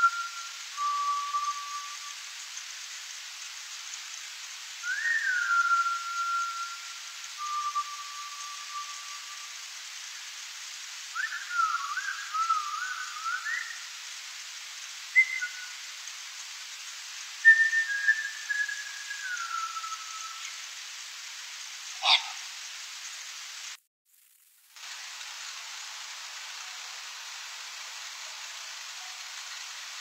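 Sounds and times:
long whistled notes: 0.0 - 2.6, 4.7 - 9.9, 11.0 - 14.2, 15.0 - 16.4, 17.2 - 20.8
steady hiss: 0.0 - 30.0.

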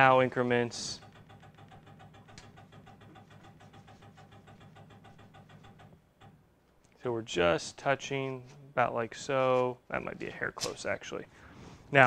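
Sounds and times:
rapid even ticking: 0.0 - 6.9.

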